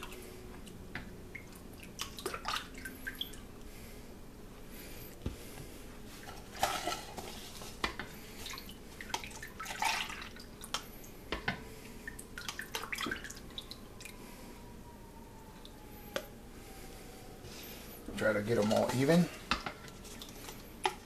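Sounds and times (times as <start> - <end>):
liquid pouring and splashing: 1.3 - 3.4, 8.4 - 10.8, 12.0 - 14.1.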